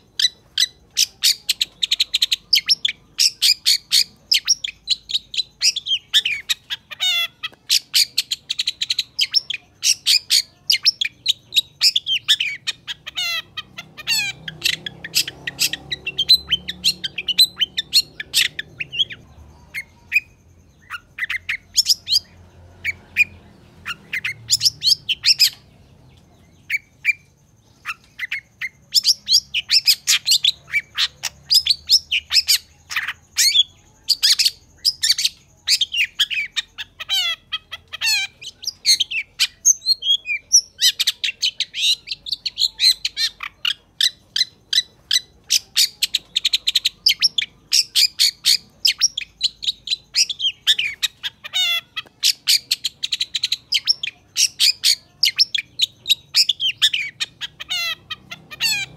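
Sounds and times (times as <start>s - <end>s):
shrike singing chattering trills: 0.0s - 58.9s.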